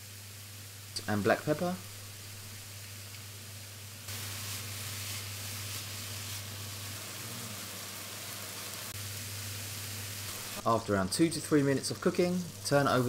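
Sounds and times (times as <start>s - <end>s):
mushrooms sizzling in hot oil: 0.0s - 13.0s.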